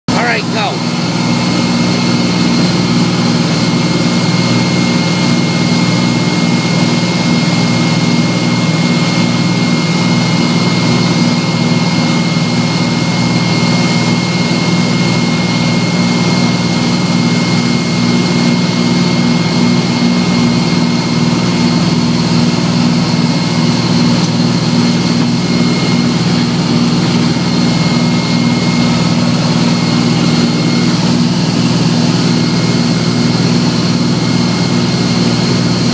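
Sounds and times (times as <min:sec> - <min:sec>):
engine drone: 0:00.1 - 0:35.9
thin high whine: 0:11.5 - 0:35.9.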